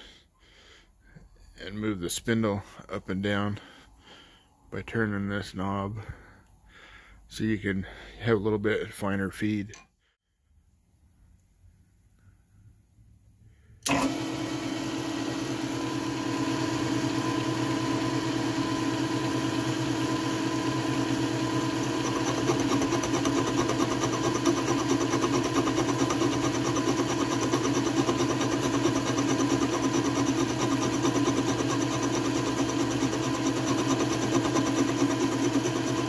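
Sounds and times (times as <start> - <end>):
metal cutting noise: 13.8 - 36.0
milling machine hum: 13.8 - 36.0.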